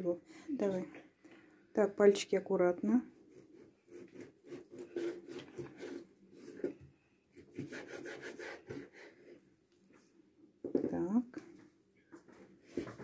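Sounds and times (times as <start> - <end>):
knife sawing through meat on board: 3.3 - 6.0, 7.6 - 9.1.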